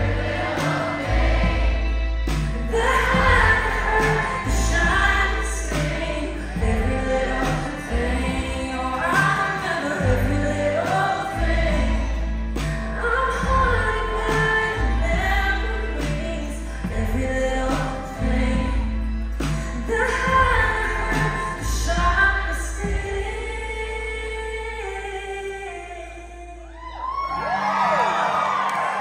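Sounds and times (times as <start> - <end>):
country band playing: 0.0 - 29.0
woman singing: 2.6 - 26.9.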